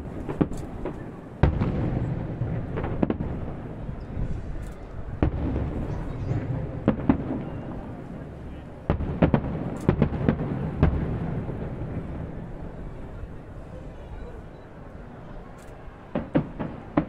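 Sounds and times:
firework shells bursting: 8.9s - 11.7s.

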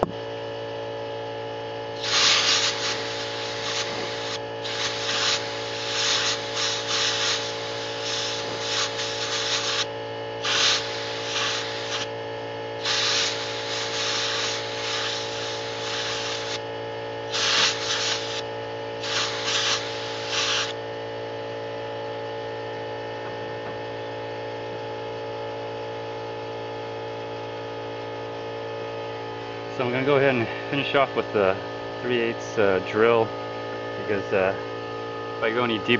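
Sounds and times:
steady machine hum: 0.0s - 35.9s
compressed air blasts: 2.0s - 12.1s, 12.8s - 16.6s, 17.3s - 20.8s.

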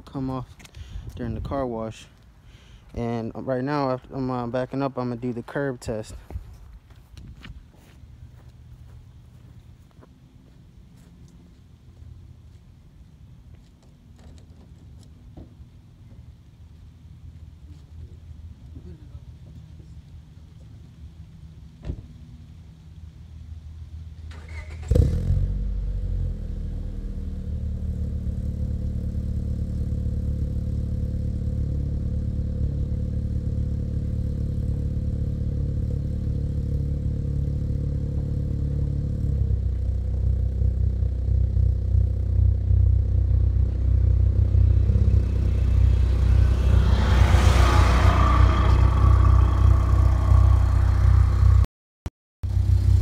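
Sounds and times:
car engine starting and idling: 21.2s - 51.7s.

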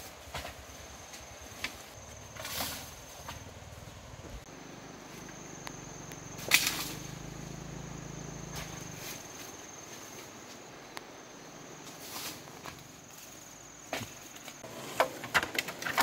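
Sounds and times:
high-pitched insect drone: 4.4s - 10.6s.

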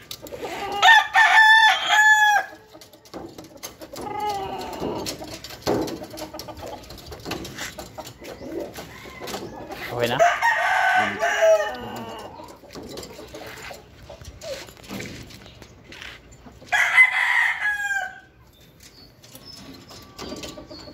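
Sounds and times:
chicken clucking: 0.0s - 15.0s, 19.6s - 20.9s
rooster crowing: 0.8s - 2.6s, 8.8s - 12.4s, 16.7s - 18.3s
knocks against metal cage: 3.0s - 7.8s.

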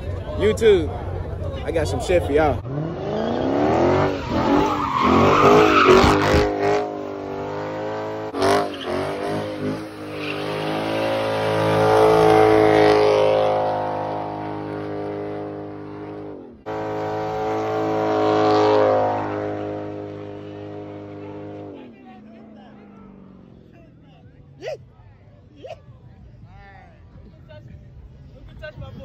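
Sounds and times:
tires screeching: 1.7s - 23.9s
car engine revving high: 2.4s - 22.1s.

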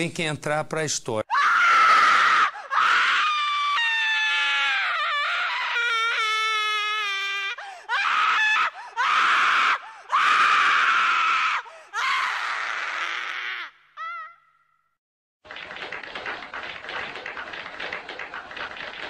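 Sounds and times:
person screaming: 1.3s - 14.4s.

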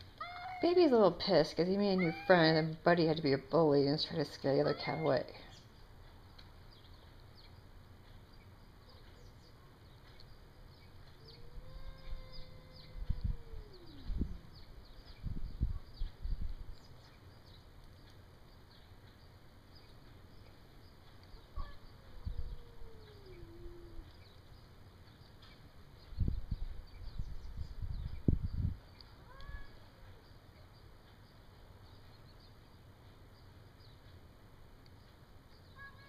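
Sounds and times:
cat yowling: 0.2s - 0.8s, 1.9s - 2.5s, 11.2s - 14.6s, 21.6s - 24.1s
low rumbling: 11.1s - 17.0s.

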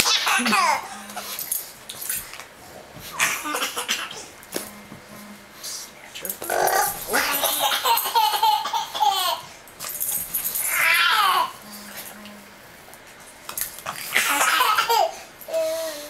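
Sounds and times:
baby laughing: 0.0s - 0.9s, 7.1s - 9.5s, 14.1s - 15.6s.

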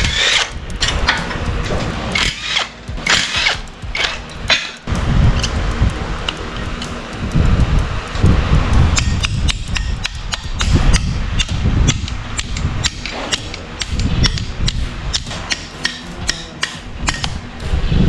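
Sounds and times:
hand tools clinking on metal: 0.0s - 5.6s
steady low rumble: 0.0s - 18.0s.

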